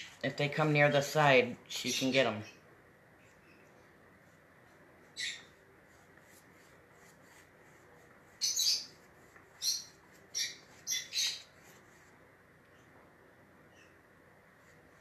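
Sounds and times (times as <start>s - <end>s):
finch chirping: 5.2s - 5.5s, 8.4s - 9.0s, 9.6s - 11.5s.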